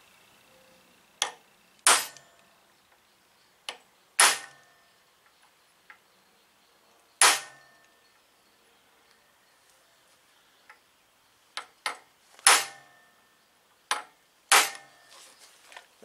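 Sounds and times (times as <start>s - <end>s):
hammer striking metal: 1.9s - 2.4s, 4.2s - 4.8s, 7.2s - 7.9s, 12.5s - 13.1s, 13.9s - 15.1s.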